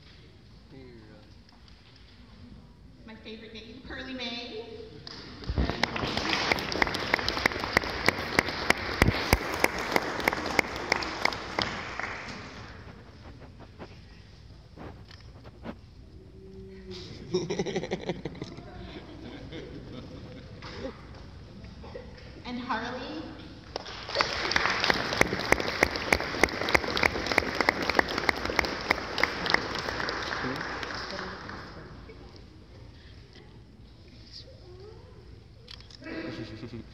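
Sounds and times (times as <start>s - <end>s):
close hands clapping: 5.0s - 13.0s, 23.7s - 31.8s
audience applauding: 5.5s - 12.9s, 23.8s - 32.0s.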